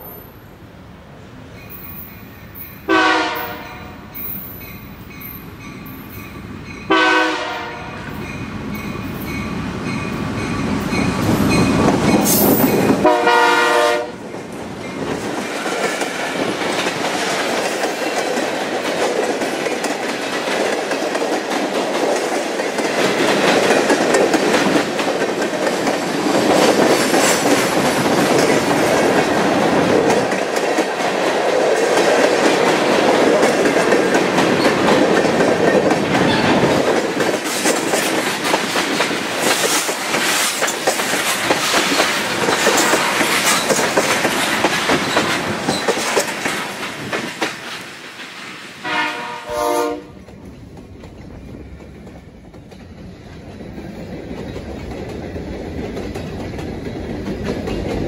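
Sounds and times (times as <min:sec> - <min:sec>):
diesel locomotive engine: 0:00.0 - 0:58.0
freight cars rumbling on rails: 0:00.0 - 0:58.0
train horn blasts: 0:02.9 - 0:04.2, 0:06.9 - 0:08.2, 0:13.0 - 0:14.2, 0:42.7 - 0:43.4, 0:48.8 - 0:50.2
wheels clicking on rails: 0:14.3 - 0:48.6, 0:50.2 - 0:58.0.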